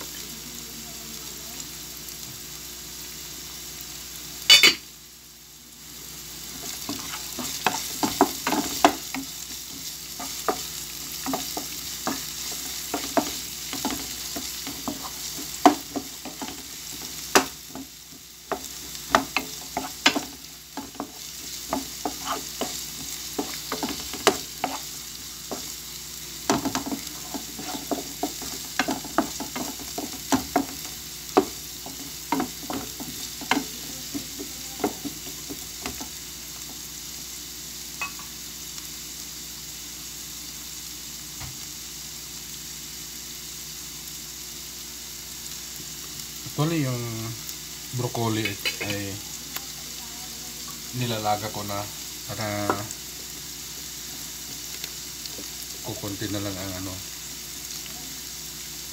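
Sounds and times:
onions sizzling in oil: 0.0s - 58.9s
spatula scraping pan: 6.6s - 25.8s, 26.4s - 36.1s.

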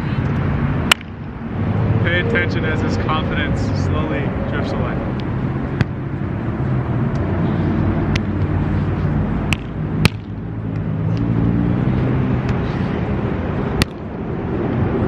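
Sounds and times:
volleyball being hit: 9.5s - 10.4s.

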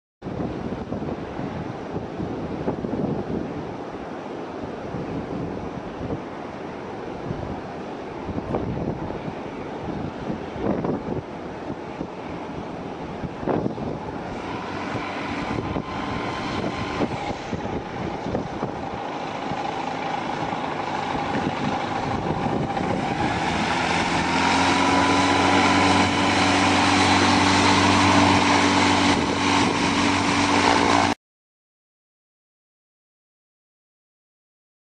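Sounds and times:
gusty wind on microphone: 0.2s - 31.2s
propeller engine drone: 3.5s - 31.2s.

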